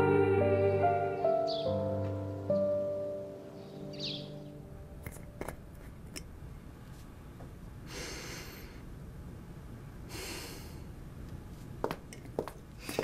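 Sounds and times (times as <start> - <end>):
person sniffing: 7.9 - 8.8.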